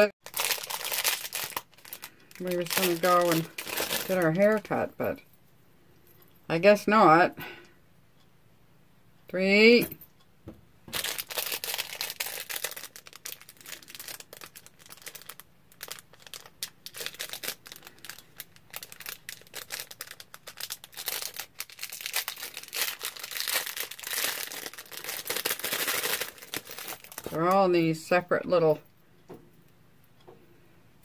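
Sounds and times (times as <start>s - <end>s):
plastic bag crinkling: 0.2s - 5.2s, 10.9s - 27.7s.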